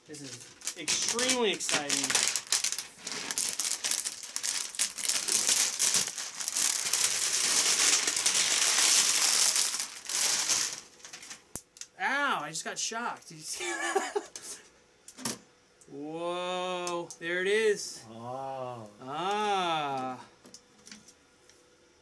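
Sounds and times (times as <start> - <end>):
plastic film crinkling: 0.0 - 11.5.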